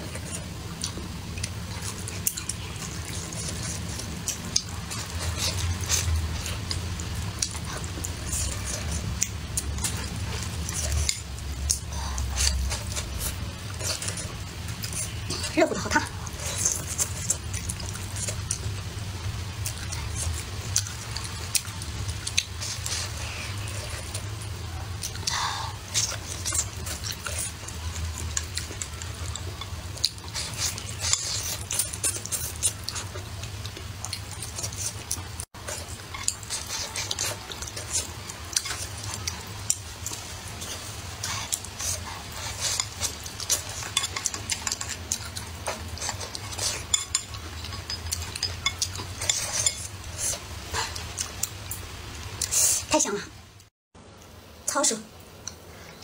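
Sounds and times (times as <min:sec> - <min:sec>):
chopsticks scraping on ceramic plate: 0:40.6 - 0:51.0.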